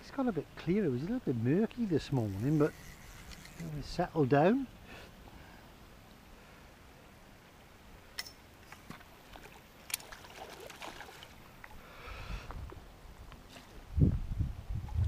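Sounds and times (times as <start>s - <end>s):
fish splashing at water surface: 9.3s - 11.4s.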